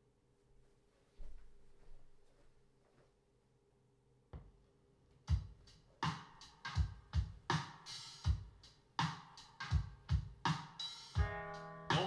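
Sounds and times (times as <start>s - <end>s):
music from vinyl record: 5.2s - 12.0s.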